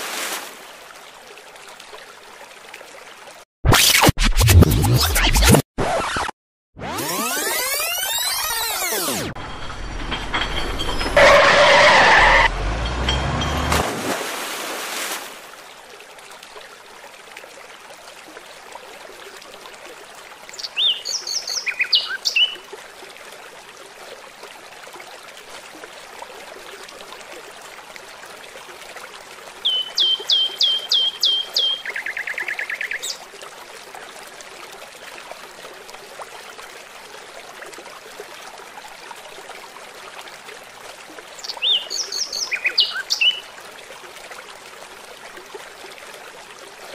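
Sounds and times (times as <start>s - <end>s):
bird chirping and trilling: 20.6s - 22.6s, 29.6s - 33.2s, 41.4s - 43.4s.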